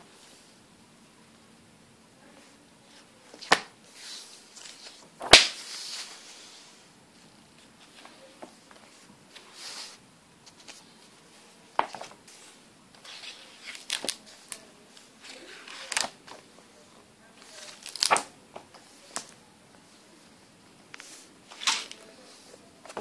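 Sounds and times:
pages slapping: 0:03.3 - 0:03.7, 0:04.6 - 0:06.1, 0:13.0 - 0:14.6, 0:15.3 - 0:16.4, 0:17.4 - 0:18.3
paper pages rustling: 0:03.3 - 0:06.6, 0:07.6 - 0:16.5, 0:17.4 - 0:19.4.

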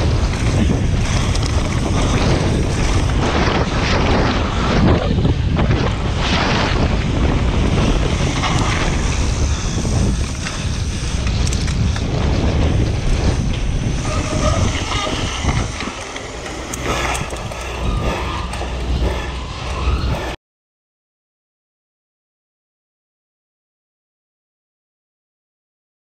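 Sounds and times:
bike frame and chain rattling: 0:00.0 - 0:04.7, 0:05.3 - 0:20.4
bike tyre rumble on tarmac: 0:00.0 - 0:20.4
wind buffeting microphone: 0:00.0 - 0:20.4.

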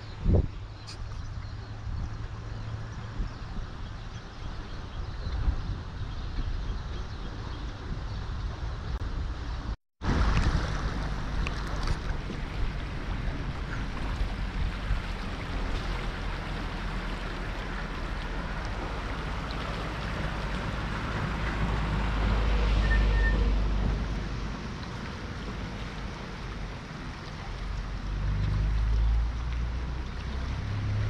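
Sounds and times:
river rushing: 0:10.0 - 0:31.0.

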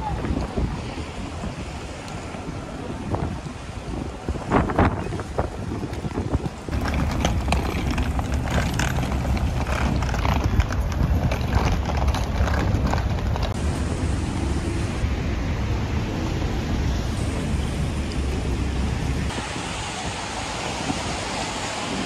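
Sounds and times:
wind rumble on microphone: 0:00.0 - 0:22.0
footsteps on stone paving: 0:05.8 - 0:13.6
suitcase wheels clacking on stone: 0:06.7 - 0:13.6.

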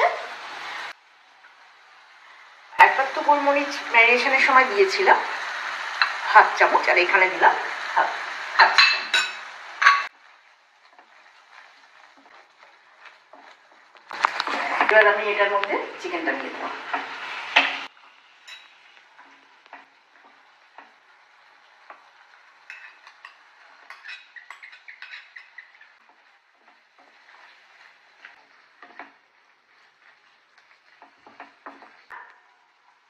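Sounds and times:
faint sizzle: 0:00.0 - 0:33.0
wooden spatula scraping a pan: 0:09.8 - 0:33.0.

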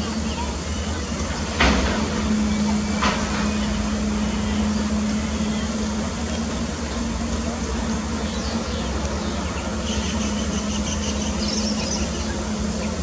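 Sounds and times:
low engine drone: 0:00.0 - 0:13.0.

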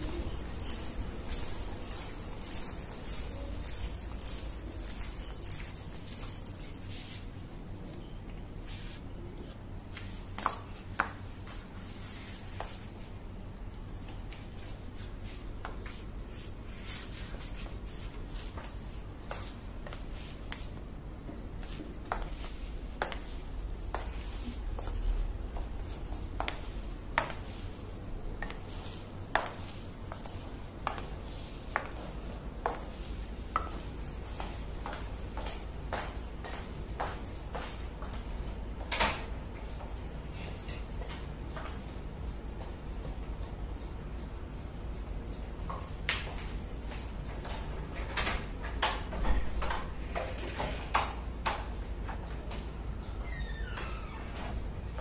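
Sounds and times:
heeled footsteps on tiled floor: 0:00.0 - 0:07.4, 0:08.7 - 0:43.2
faint metallic jingle: 0:00.0 - 0:08.2, 0:09.9 - 0:13.0, 0:13.8 - 0:15.3, 0:21.6 - 0:42.6, 0:45.3 - 0:47.7.

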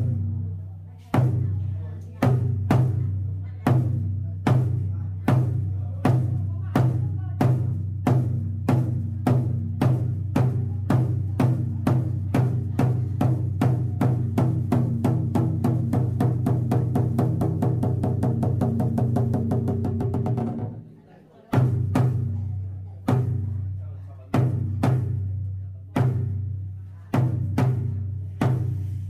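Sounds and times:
large drum roll: 0:02.2 - 0:20.8.

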